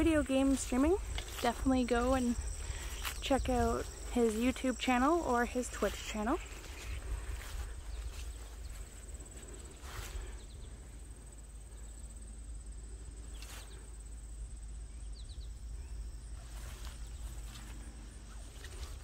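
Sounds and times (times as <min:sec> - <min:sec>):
high-pitched insect trill: 0:00.0 - 0:19.0
footsteps swishing through grass: 0:00.3 - 0:10.4, 0:16.4 - 0:19.0.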